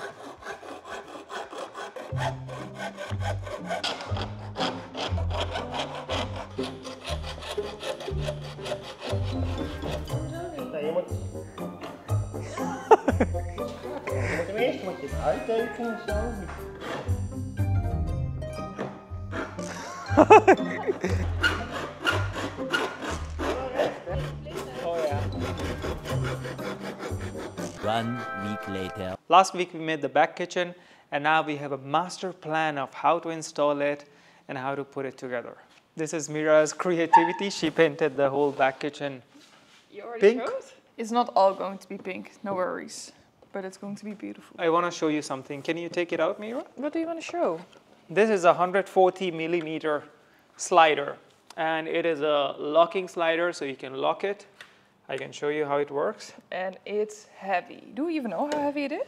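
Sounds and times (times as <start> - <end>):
hacksaw cutting aluminium: 0.0 - 10.3, 16.6 - 17.2, 21.0 - 28.3.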